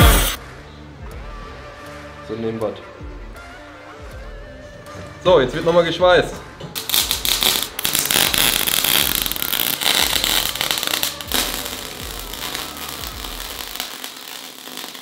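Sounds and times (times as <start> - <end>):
welding arc crackling: 6.8 - 15.0.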